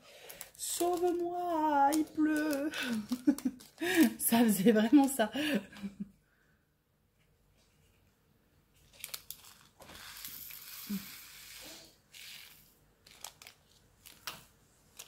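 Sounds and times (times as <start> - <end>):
plastic bag crinkling: 0.0 - 5.5, 8.8 - 11.0, 12.5 - 15.0
small beads rattling in bag: 0.2 - 4.3, 8.9 - 11.0, 12.2 - 14.2.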